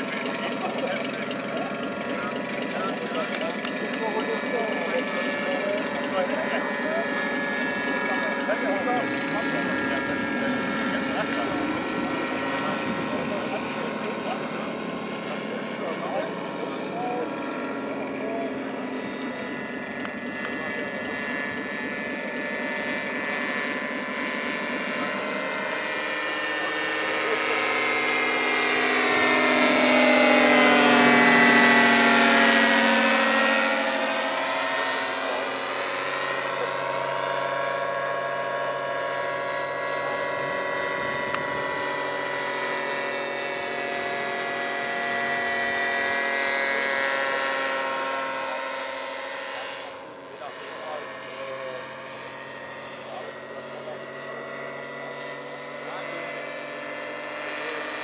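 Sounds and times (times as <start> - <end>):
model plane propeller droning: 0.0 - 58.0.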